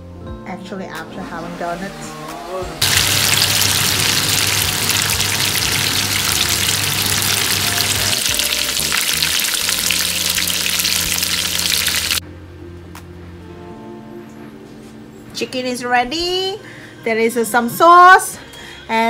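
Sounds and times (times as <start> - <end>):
chicken sizzling in hot oil: 2.8 - 12.2.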